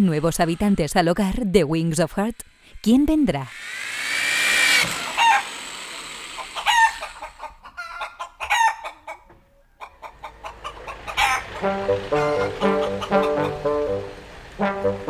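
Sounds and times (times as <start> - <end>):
rooster crowing: 5.1 - 5.5, 6.6 - 9.0, 11.1 - 11.6
chicken clucking: 6.4 - 14.0.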